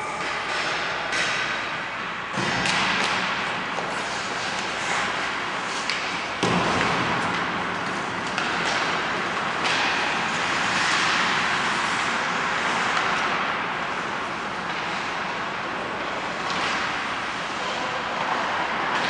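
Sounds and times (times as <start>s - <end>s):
hockey sticks and puck clacking: 0.0s - 19.0s
skates scraping on ice: 2.4s - 19.0s.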